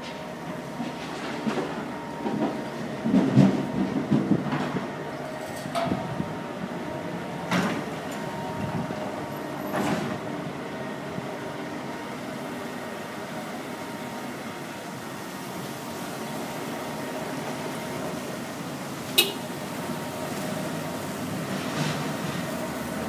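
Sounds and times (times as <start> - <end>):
machinery engine hum: 0.0 - 23.0
metallic clanks and knocks: 2.4 - 6.2.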